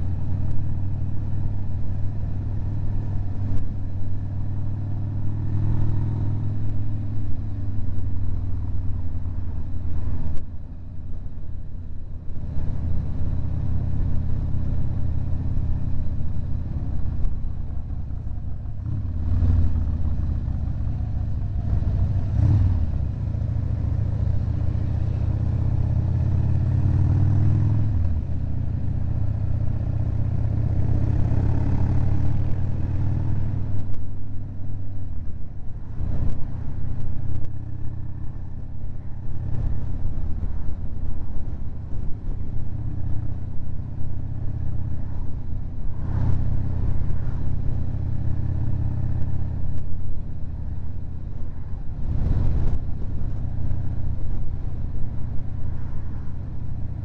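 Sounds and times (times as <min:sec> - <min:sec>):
wind noise: 0:05.4 - 0:57.0
motorcycle engine accelerating: 0:12.4 - 0:34.8, 0:35.8 - 0:57.0.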